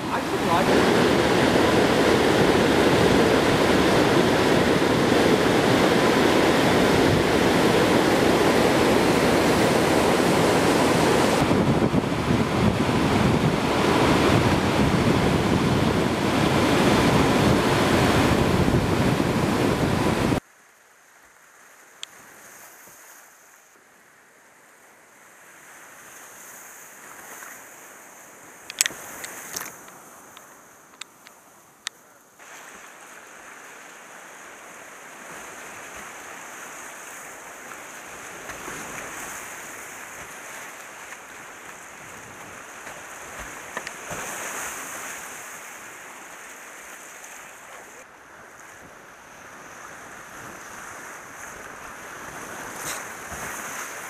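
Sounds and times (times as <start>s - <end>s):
whitewater rapids rushing: 0.0s - 20.4s.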